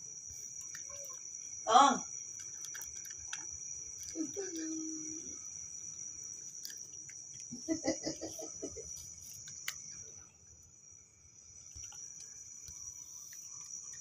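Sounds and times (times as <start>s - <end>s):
cricket trill: 0.0s - 14.0s
cat crunching dry kibble: 2.3s - 4.7s.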